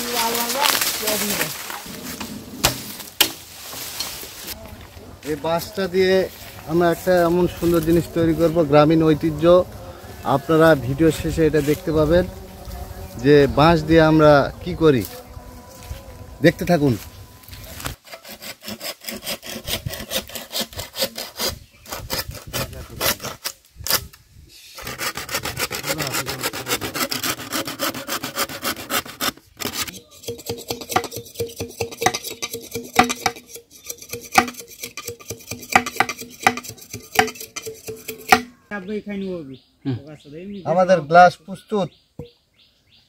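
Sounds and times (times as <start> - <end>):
hand saw cutting bamboo: 17.7 - 24.2, 24.8 - 38.5.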